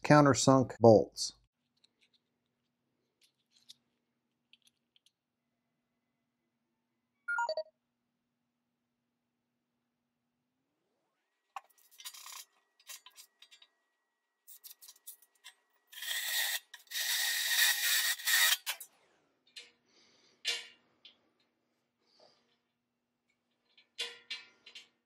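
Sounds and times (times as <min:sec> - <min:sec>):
drill bit grinding steel: 0:15.9 - 0:18.8.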